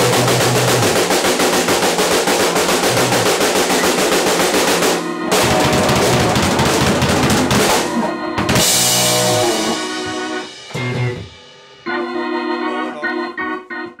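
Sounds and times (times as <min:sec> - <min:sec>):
bass guitar: 0:00.0 - 0:01.0, 0:05.2 - 0:11.4
rock band playing loudly: 0:00.0 - 0:12.7
organ keyboard chords: 0:00.0 - 0:14.0
crashing cymbals: 0:07.6 - 0:11.9.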